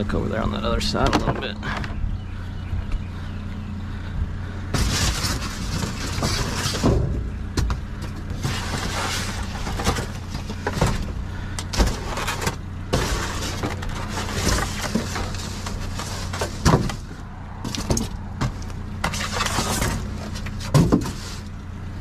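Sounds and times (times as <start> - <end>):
low hum: 0.0 - 22.0
trash rustling and scraping: 4.6 - 21.8.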